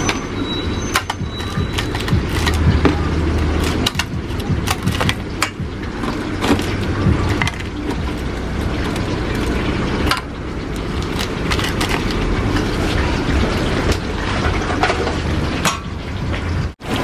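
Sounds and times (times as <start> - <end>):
low rumble: 1.2 - 16.8
metal tongs clicking on trays: 3.5 - 5.6.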